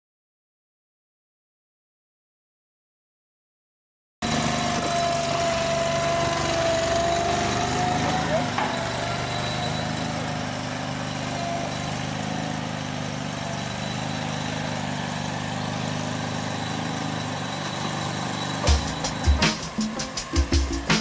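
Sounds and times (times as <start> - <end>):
boat engine running: 4.2 - 21.0
music with heavy beat: 18.6 - 21.0.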